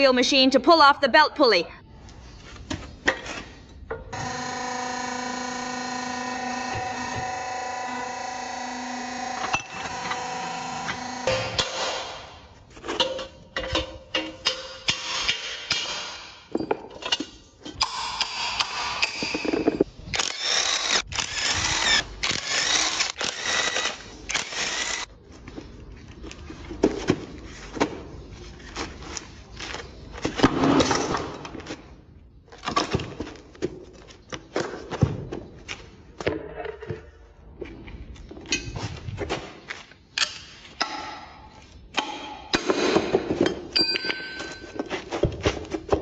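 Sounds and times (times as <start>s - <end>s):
impact wrench hammering: 4.1s - 12.3s
metal clanks and knocks: 12.8s - 19.9s.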